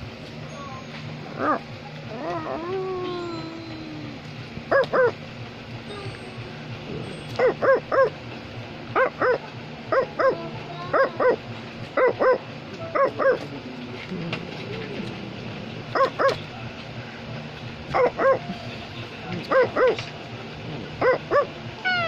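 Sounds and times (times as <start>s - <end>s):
falling whine: 0.0s - 22.0s
dog yipping barks: 4.7s - 5.2s, 7.3s - 8.2s, 9.0s - 11.4s, 12.0s - 13.4s, 16.0s - 16.4s, 17.9s - 18.5s, 19.5s - 20.1s, 21.0s - 22.0s.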